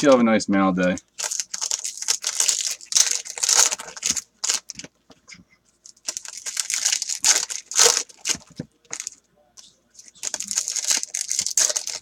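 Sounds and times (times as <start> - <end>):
foil wrapper tearing and crinkling: 0.8 - 4.8, 5.9 - 9.2, 10.0 - 12.0.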